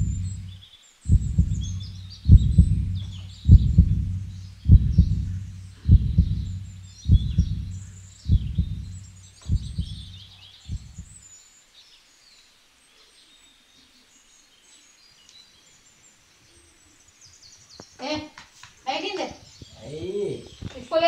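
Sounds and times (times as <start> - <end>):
heartbeat double thumps: 0.0 - 11.2
birds chirping: 0.0 - 11.4, 14.8 - 21.0.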